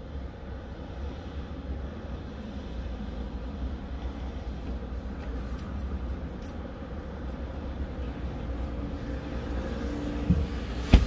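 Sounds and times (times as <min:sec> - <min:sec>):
vehicles rumbling: 0:00.0 - 0:11.0
thump: 0:10.3 - 0:11.0.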